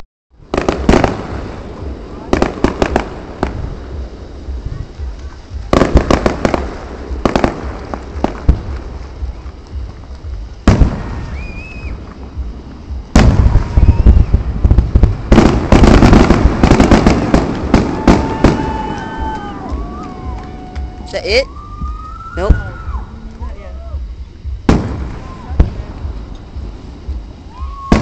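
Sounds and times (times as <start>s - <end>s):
fireworks bursting with sharp bangs: 0.4s - 28.0s
rapid crackling reports: 0.5s - 10.7s.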